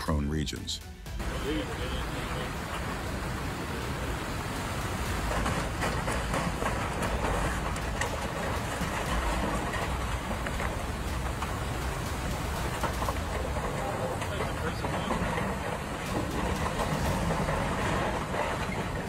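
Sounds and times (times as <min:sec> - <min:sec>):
heavy rain: 0:01.0 - 0:19.0
river water rushing: 0:01.2 - 0:19.0.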